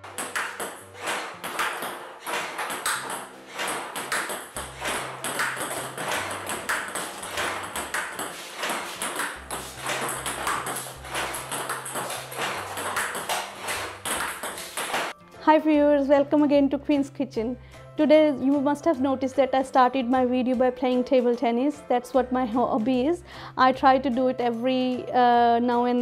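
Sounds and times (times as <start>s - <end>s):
table tennis ball clicking: 0.0s - 15.1s.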